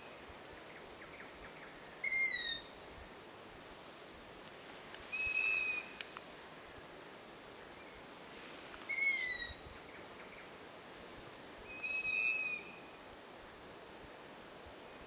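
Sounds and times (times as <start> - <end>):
owl chick squealing: 8.9 - 9.6.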